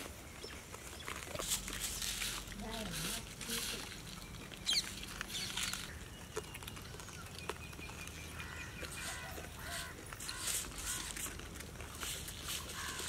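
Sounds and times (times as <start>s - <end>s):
fowl calling: 8.4s - 11.2s.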